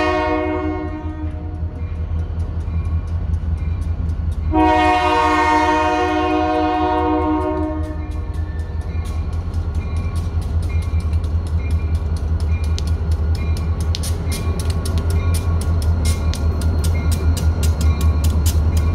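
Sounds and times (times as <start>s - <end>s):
diesel locomotive horn: 0.0s - 1.8s, 4.4s - 8.7s.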